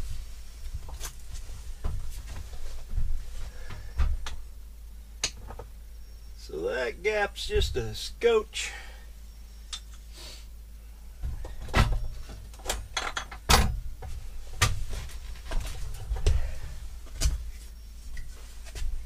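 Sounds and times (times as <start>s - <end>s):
knocks and clunks: 1.8s - 4.4s, 11.2s - 17.5s
dull thuds: 13.5s - 17.5s.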